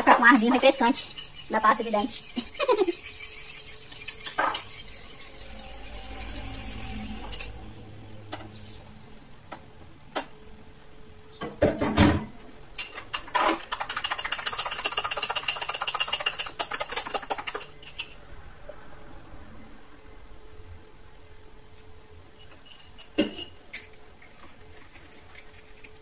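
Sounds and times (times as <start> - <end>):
spoon stirring liquid in bowl: 0.0 - 7.5, 12.8 - 18.2
spoon clinking against glass jar: 12.8 - 18.1, 22.4 - 23.6.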